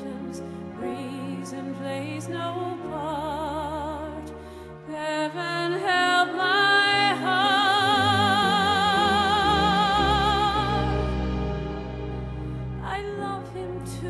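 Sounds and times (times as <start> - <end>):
woman singing a ballad: 0.0 - 11.2, 12.8 - 14.0
instrumental accompaniment: 6.9 - 14.0.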